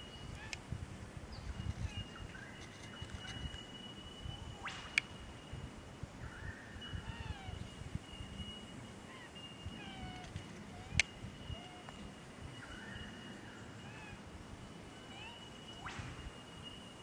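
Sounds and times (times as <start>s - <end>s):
wind rumble on microphone: 0.0s - 17.0s
birds calling: 6.2s - 17.0s.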